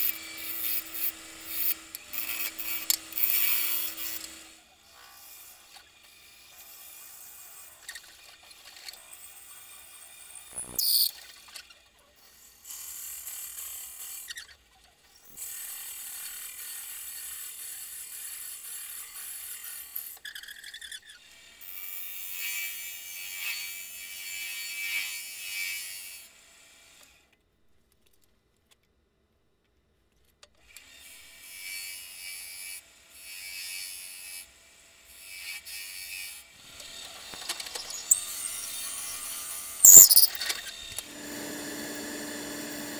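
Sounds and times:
lathe scraping and chattering: 41.1s - 42.9s.

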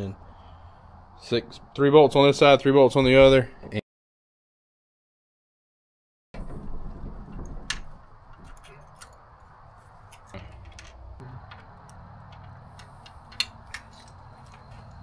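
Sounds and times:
wrench and bolts clicking: 10.1s - 15.0s.

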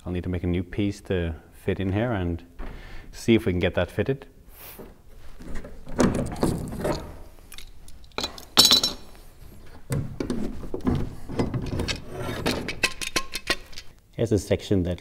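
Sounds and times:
metal clamps clinking and scraping: 5.5s - 14.0s.

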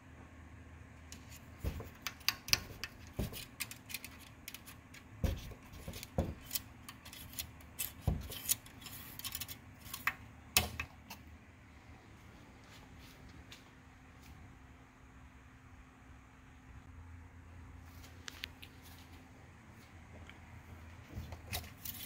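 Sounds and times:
metal dipstick clicking and scraping: 1.1s - 11.2s.

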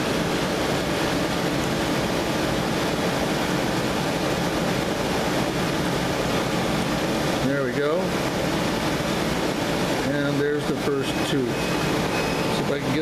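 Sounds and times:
exhaust fan rushing: 0.0s - 13.0s.

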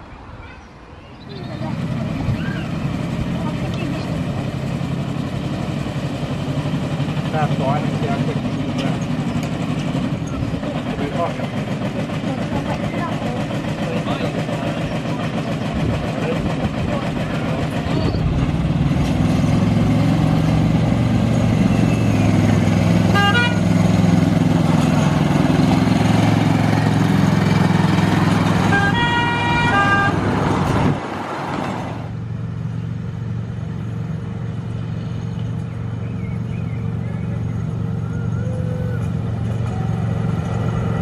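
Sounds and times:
locomotive horn toot: 23.0s - 23.9s, 28.4s - 30.4s.

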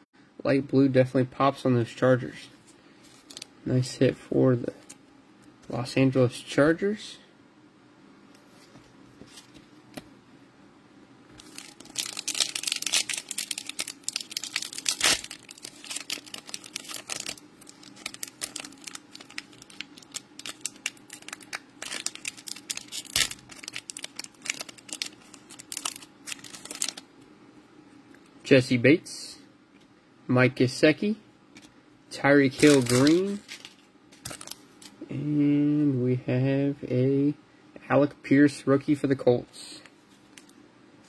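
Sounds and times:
foil wrapper tearing and crinkling: 11.4s - 27.0s, 32.5s - 34.6s.

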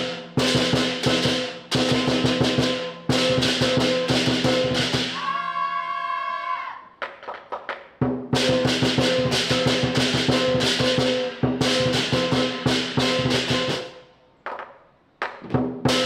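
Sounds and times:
cymbals crashing: 0.0s - 5.2s, 8.4s - 14.1s
fast drum beating: 0.0s - 5.2s, 7.3s - 13.9s, 15.4s - 16.0s.

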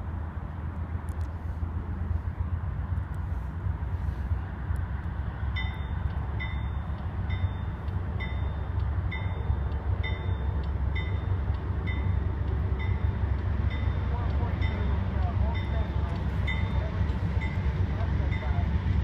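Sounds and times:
steady low rumble: 0.0s - 19.0s
railway warning bell dinging: 5.4s - 19.0s.

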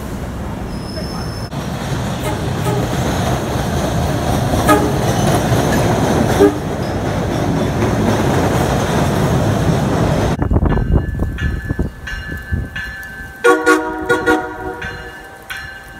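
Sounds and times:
subway train passing: 0.0s - 15.9s
short train horn toots: 2.2s - 2.9s, 4.6s - 5.1s, 6.4s - 6.6s, 13.4s - 14.8s.

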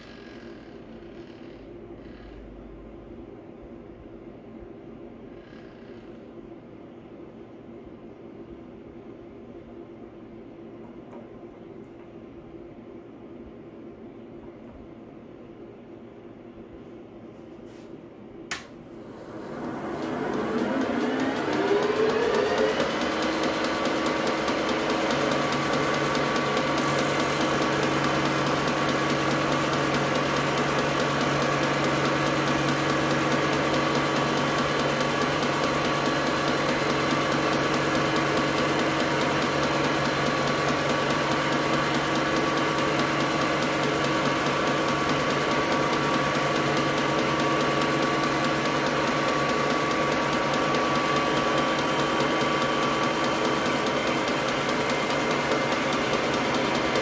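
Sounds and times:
milling machine spindle whine: 18.8s - 30.8s.

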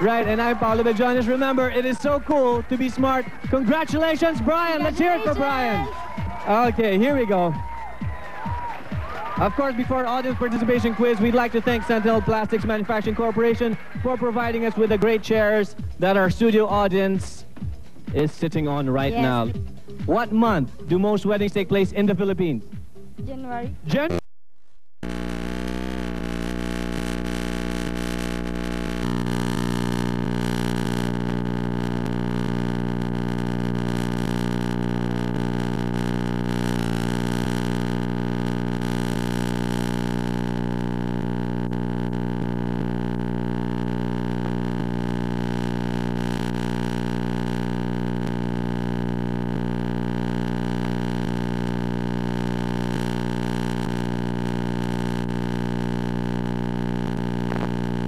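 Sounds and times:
electrical hum: 25.0s - 58.0s.

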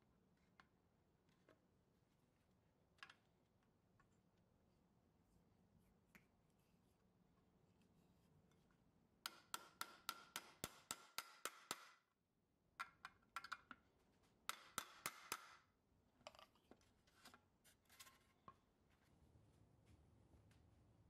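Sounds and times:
hammer tapping steel punch: 9.2s - 12.0s, 14.5s - 15.6s.

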